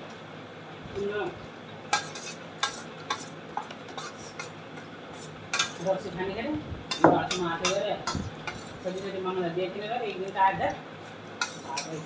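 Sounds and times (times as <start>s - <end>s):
spoon clinking on metal plate: 5.5s - 5.8s, 11.4s - 12.0s.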